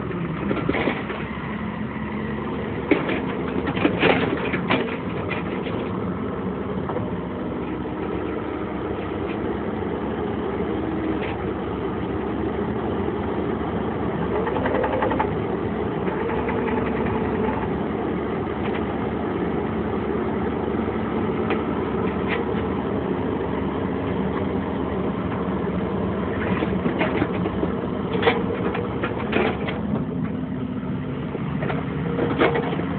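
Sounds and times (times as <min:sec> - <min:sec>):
excavator diesel engine running: 0:00.0 - 0:32.9.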